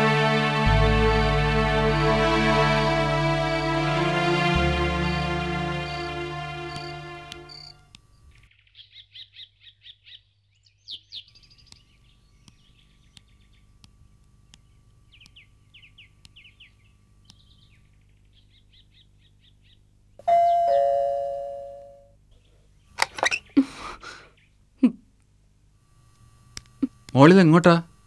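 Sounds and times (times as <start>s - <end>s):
small birds chirping: 4.8s - 20.8s
ding-dong doorbell: 20.2s - 22.2s.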